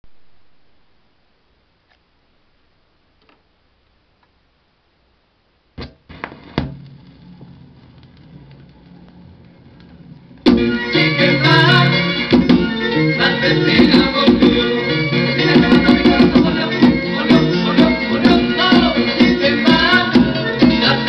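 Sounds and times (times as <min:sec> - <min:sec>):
vinyl record crackle and pops: 0:00.0 - 0:12.8
song with guitar: 0:05.8 - 0:21.0.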